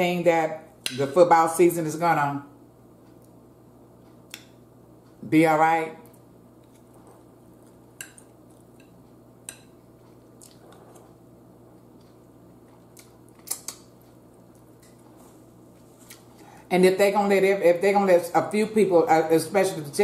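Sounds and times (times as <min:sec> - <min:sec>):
low steady hum: 0:00.0 - 0:20.0
faint chewing: 0:06.1 - 0:16.7
fork clinking against bowl: 0:08.0 - 0:09.8.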